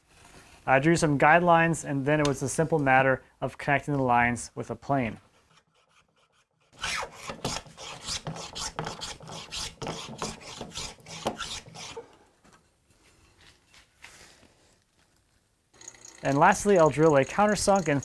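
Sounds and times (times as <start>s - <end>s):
hand plane shaving wood: 5.8s - 12.0s.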